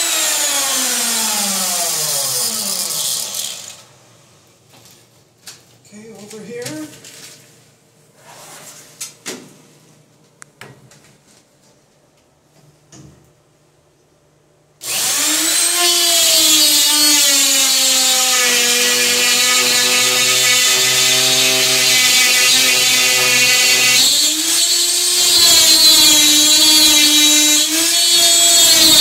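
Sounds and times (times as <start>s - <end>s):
router motor whining: 0.0s - 3.8s, 14.8s - 29.0s.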